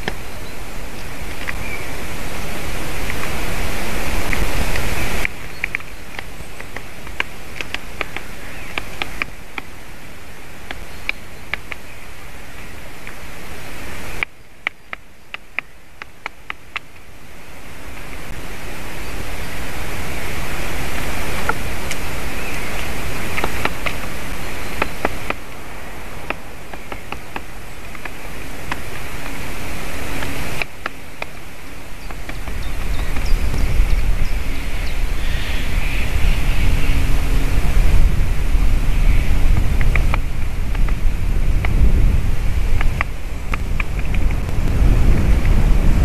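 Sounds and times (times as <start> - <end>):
wind on microphone and trees: 0.0 - 46.0.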